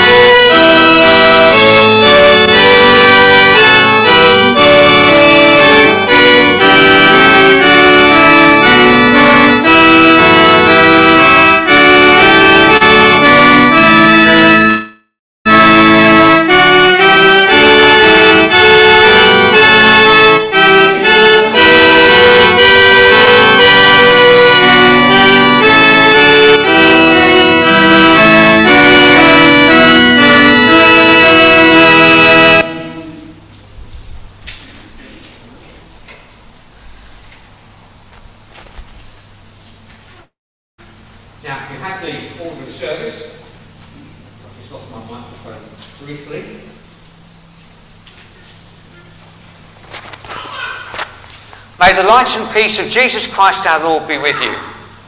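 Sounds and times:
instrumental music of reedy chords: 0.0 - 33.4
hymn accompaniment over speakers: 15.5 - 33.4.

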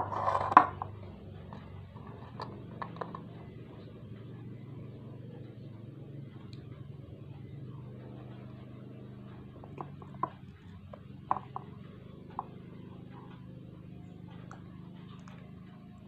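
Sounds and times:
steady low hum: 0.0 - 16.0
fruit clicking and tapping: 9.6 - 12.8.

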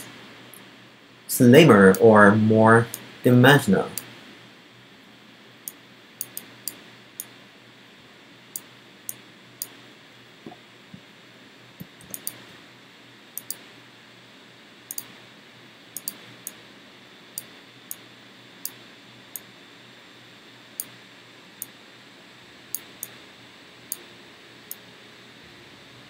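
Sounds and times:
faint steady hiss: 0.0 - 26.0.

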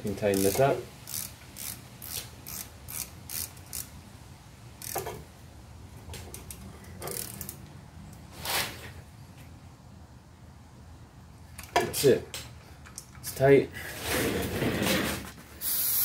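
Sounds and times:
socket ratchet clicking: 0.3 - 3.9, 4.8 - 5.1, 6.3 - 7.6.

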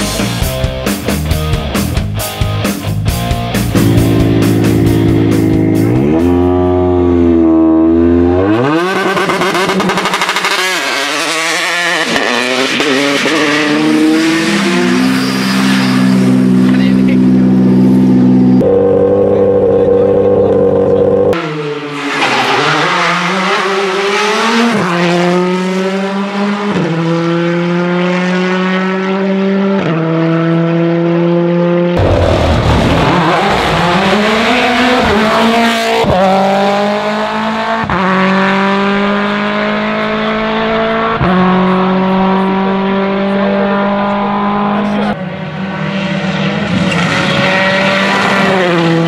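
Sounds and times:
rally car engine revving: 0.0 - 49.0
rally cars accelerating with upshifts: 3.6 - 49.0.

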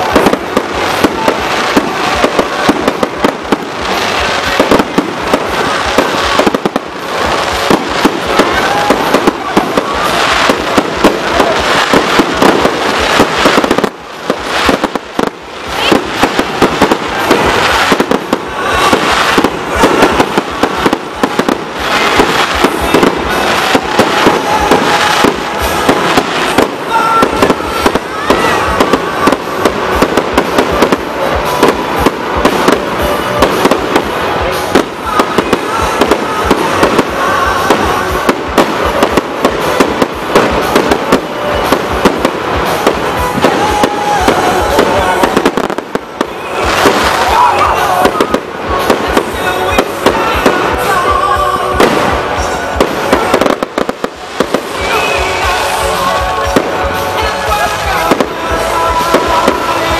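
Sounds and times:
fireworks bursting with bangs and crackles: 0.0 - 59.9.

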